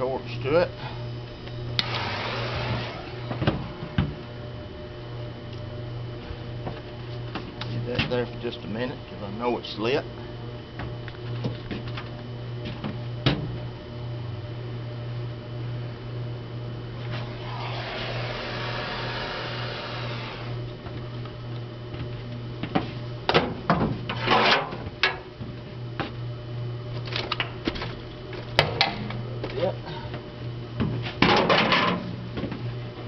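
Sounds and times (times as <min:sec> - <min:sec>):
electric blower humming: 0:00.8 - 0:09.2, 0:17.0 - 0:21.7
propane torch hissing: 0:17.2 - 0:20.6.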